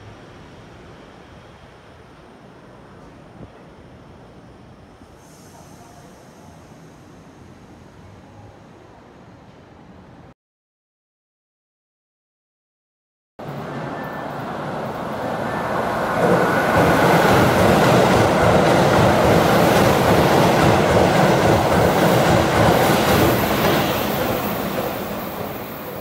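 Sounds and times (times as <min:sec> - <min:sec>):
train wheels on rails: 0:13.4 - 0:26.0.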